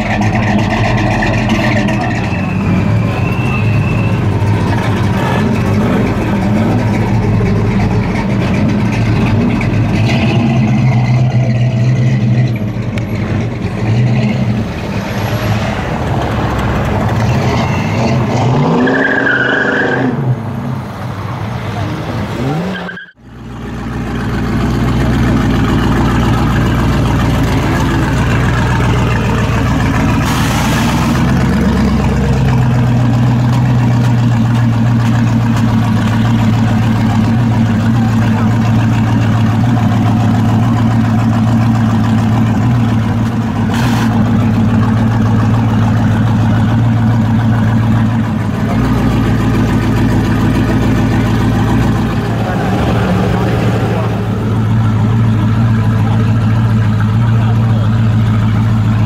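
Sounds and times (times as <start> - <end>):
car engine idling: 0.0 - 17.3, 23.1 - 59.0.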